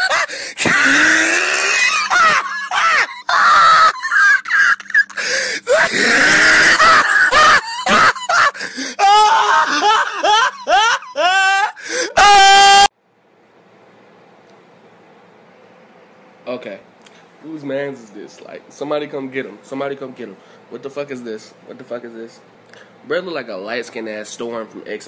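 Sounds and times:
person shrieking and laughing: 0.0s - 12.9s.

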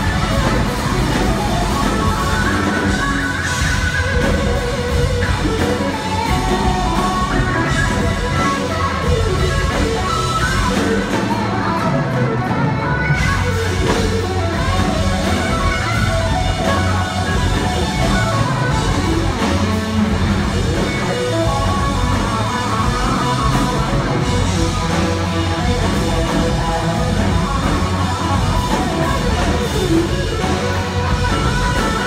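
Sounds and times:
bass: 0.0s - 32.0s
drums: 0.0s - 32.0s
electric guitar lead line: 0.0s - 32.0s.

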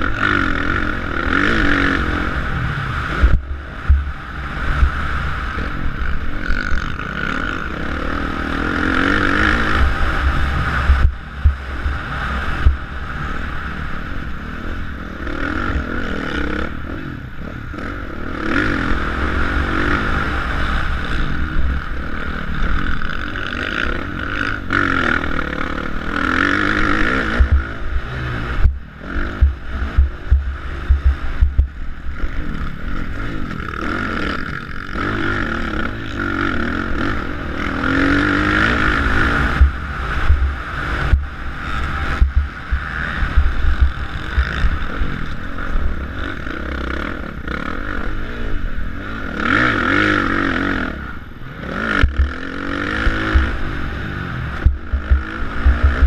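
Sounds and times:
motocross bike engine revving: 0.0s - 56.0s
bike thumping and rattling over bumps: 3.2s - 7.6s, 9.0s - 12.9s, 26.4s - 32.1s, 37.8s - 45.2s, 52.0s - 53.8s, 54.5s - 56.0s
wind buffeting microphone: 27.2s - 32.2s, 39.4s - 45.4s.

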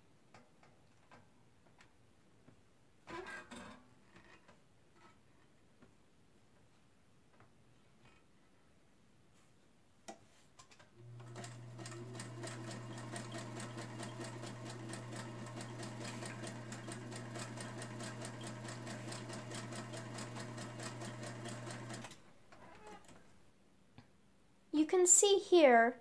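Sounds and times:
sewing machine sewing: 11.0s - 23.2s.

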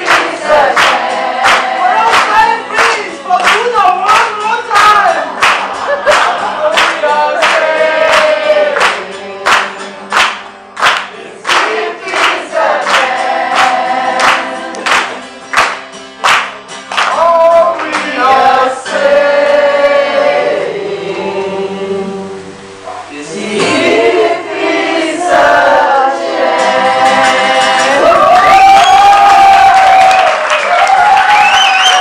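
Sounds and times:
group singing: 0.0s - 15.8s, 17.0s - 30.6s
people clapping in time: 0.0s - 18.6s, 27.2s - 32.0s
acoustic guitar: 0.0s - 32.0s.

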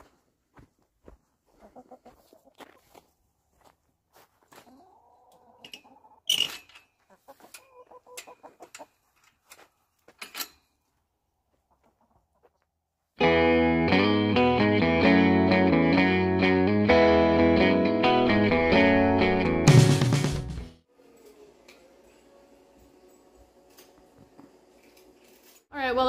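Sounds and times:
hens clucking: 1.5s - 3.0s, 4.6s - 6.3s, 7.0s - 9.2s, 11.5s - 12.7s
loud electric guitar music: 13.2s - 20.7s.

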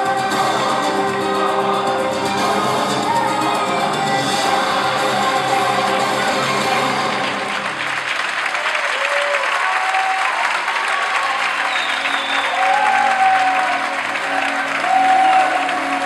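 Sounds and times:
music with bass line: 0.0s - 8.1s
audience applauding: 0.0s - 16.0s.

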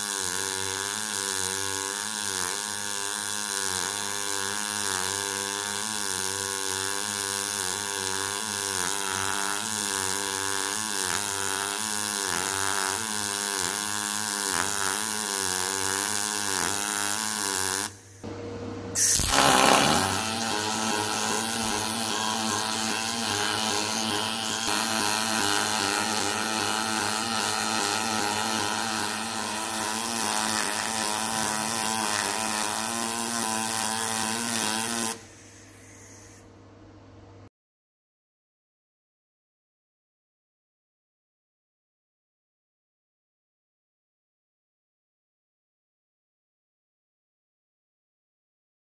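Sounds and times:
welding arc buzzing: 0.0s - 18.3s, 18.9s - 36.4s
short loud burst of noise: 19.0s - 20.2s.

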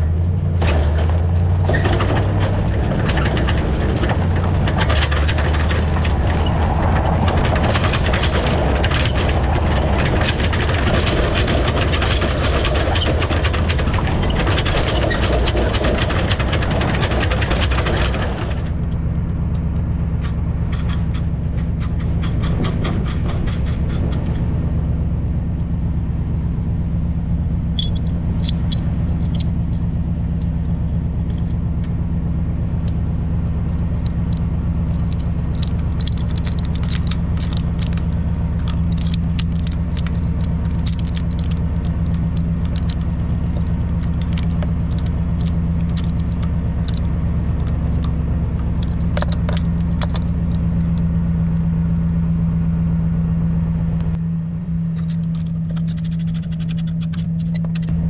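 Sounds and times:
vehicle engine idling: 0.0s - 58.0s
metallic clinks and jingles: 27.7s - 30.5s, 34.0s - 51.1s.

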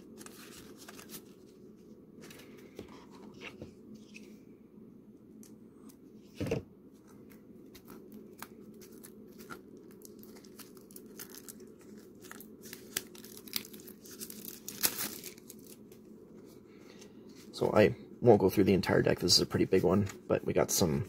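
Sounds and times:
shrink wrap crinkling and tearing: 0.0s - 1.5s, 7.7s - 16.0s.

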